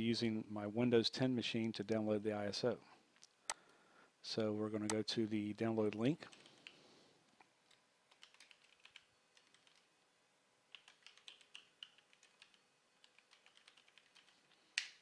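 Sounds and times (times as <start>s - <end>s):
typing on keyboard: 5.9s - 6.8s, 7.7s - 9.9s, 10.7s - 15.0s.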